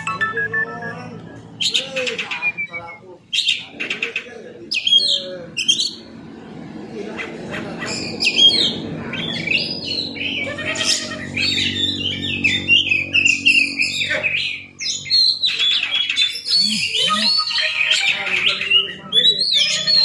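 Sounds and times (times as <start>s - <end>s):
bird singing chirps and whistles: 0.0s - 3.6s, 11.4s - 20.0s.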